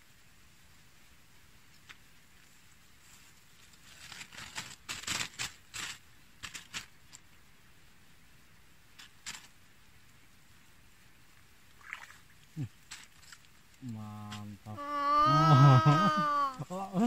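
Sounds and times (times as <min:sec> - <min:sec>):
rustling and clicking handling noise: 0:01.7 - 0:07.4, 0:08.9 - 0:09.6, 0:12.8 - 0:14.7.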